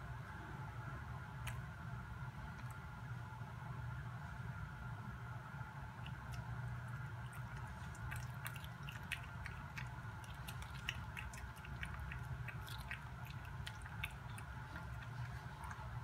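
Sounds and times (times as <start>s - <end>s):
low hum: 0.0s - 16.0s
cat chewing: 6.0s - 16.0s.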